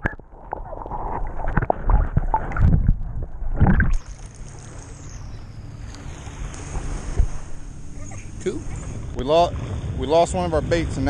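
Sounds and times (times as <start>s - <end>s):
underwater sloshing and thumps: 0.0s - 10.0s
water lapping: 0.0s - 11.0s
wind hiss: 4.0s - 11.0s.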